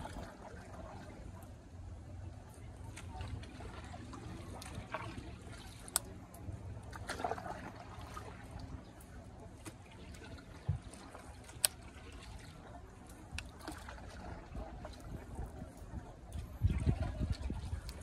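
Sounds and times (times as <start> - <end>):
water lapping against boat hull: 0.0 - 18.0
low rumble: 12.9 - 18.0.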